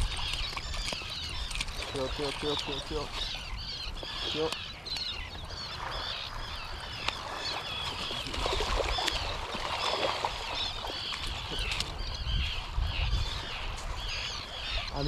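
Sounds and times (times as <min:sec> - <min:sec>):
seabirds calling: 0:00.0 - 0:15.0.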